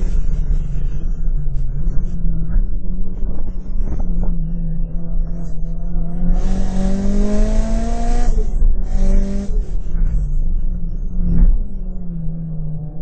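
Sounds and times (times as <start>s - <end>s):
car engine accelerating hard: 6.0s - 10.4s.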